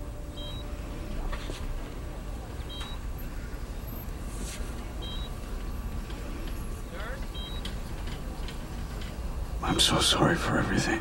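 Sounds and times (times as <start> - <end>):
patient monitor beeping: 0.0 - 1.2, 1.9 - 4.2, 4.9 - 9.3
low hum: 0.0 - 11.0.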